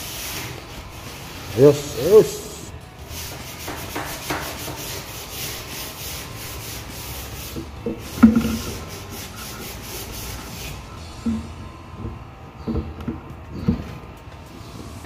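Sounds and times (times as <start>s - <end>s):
hands rubbing on wooden boards: 3.1s - 11.0s.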